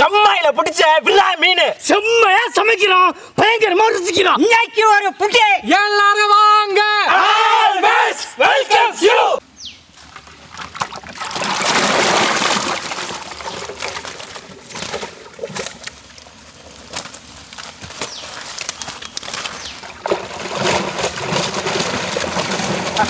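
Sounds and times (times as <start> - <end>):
water pouring and splashing: 9.9 - 23.0
fish flopping on a mat: 10.1 - 23.0.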